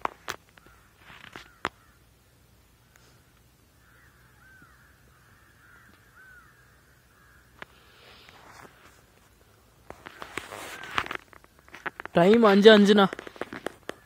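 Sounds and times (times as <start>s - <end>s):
short bird calls: 0.5s - 2.1s, 2.8s - 8.8s, 10.0s - 12.2s.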